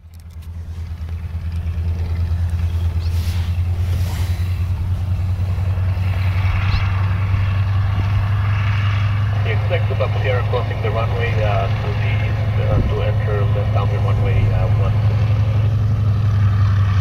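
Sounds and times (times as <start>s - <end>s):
radial aircraft engine drone: 0.0s - 17.0s.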